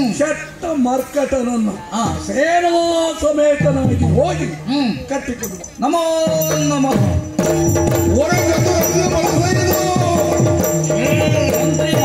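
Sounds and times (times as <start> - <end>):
fast pitch-bending drumming: 5.4 - 12.0.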